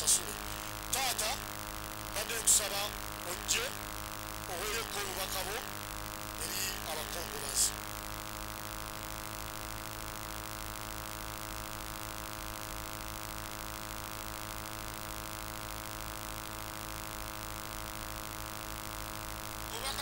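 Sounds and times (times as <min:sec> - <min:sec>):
faint hiss: 0:00.0 - 0:09.7
electrical hum and buzz: 0:00.0 - 0:20.0.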